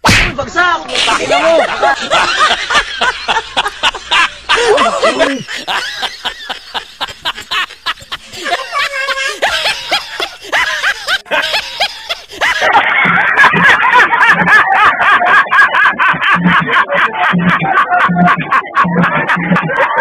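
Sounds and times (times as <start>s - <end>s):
person laughing: 0.9s - 20.0s.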